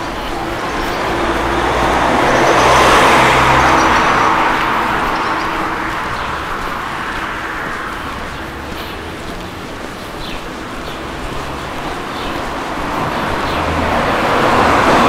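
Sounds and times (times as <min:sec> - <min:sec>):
car passing by: 0:00.0 - 0:15.0.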